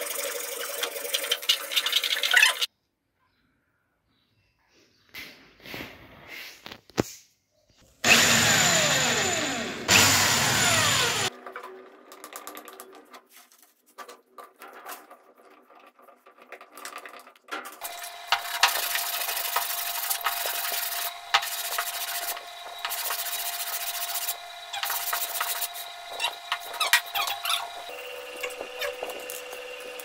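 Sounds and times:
wood rubbed on sandpaper: 17.8s - 27.9s.

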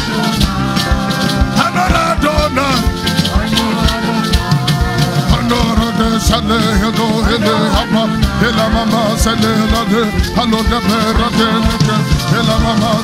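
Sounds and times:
shaker: 0.0s - 6.1s
drums: 0.0s - 13.0s
keyboard: 0.0s - 13.0s
person singing: 0.0s - 13.0s.

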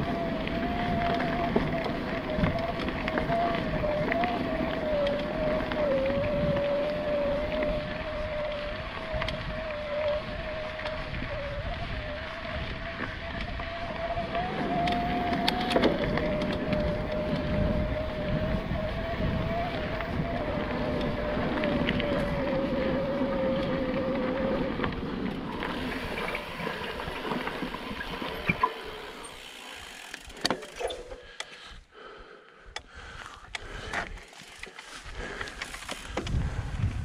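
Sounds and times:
tyre and wind rumble: 0.0s - 28.6s, 33.4s - 37.0s
electric motor whine: 0.0s - 30.8s
bike clicks and knocks: 13.3s - 18.1s, 24.7s - 31.6s, 32.7s - 36.4s.

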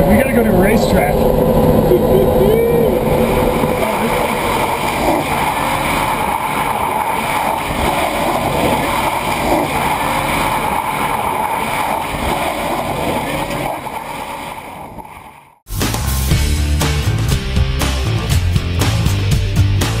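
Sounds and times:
tyres spinning in a burnout: 0.0s - 15.6s.

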